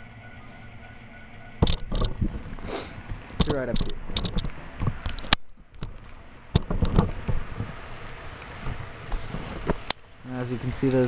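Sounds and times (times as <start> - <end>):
sharp clicks of track: 3.4 - 6.0.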